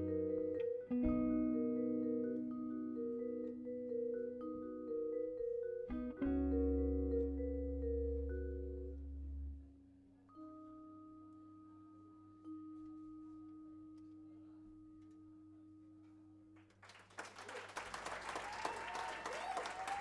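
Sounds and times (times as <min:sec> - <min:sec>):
vibraphone notes ringing: 0:00.0 - 0:09.0
audience applause: 0:16.8 - 0:20.0.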